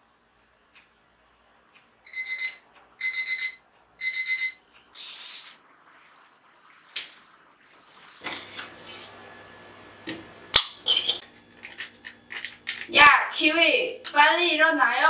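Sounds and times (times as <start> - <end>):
alarm clock beeping: 2.1 - 4.6.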